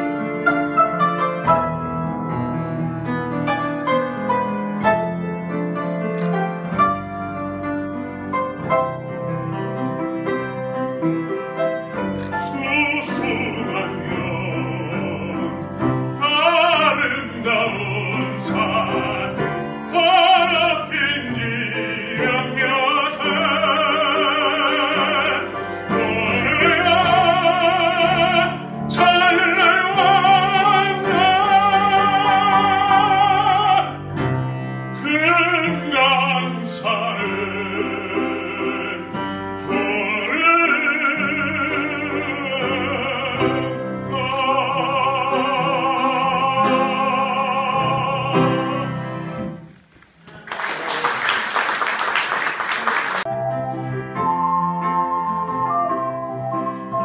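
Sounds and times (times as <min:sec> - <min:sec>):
piano: 0:00.0 - 0:57.0
man singing operatically: 0:12.2 - 0:34.3, 0:34.9 - 0:49.6.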